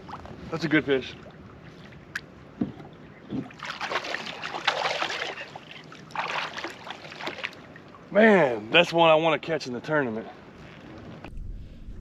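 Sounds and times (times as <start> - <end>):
water splashing against kayak: 1.1 - 8.0
fish thrashing water: 3.3 - 7.9.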